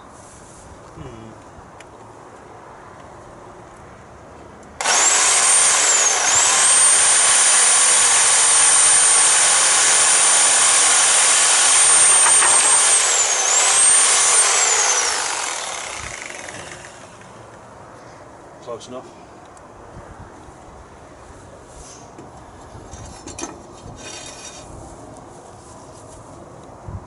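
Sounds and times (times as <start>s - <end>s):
power tool cutting timber: 4.8s - 17.4s.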